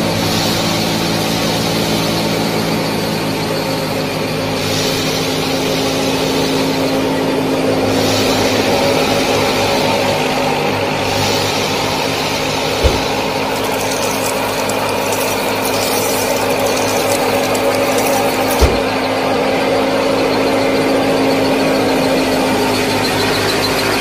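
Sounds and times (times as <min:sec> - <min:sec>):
small motor and gears running: 0:11.0 - 0:19.1
low thumps: 0:12.7 - 0:14.0
mechanism rattling: 0:12.8 - 0:18.9.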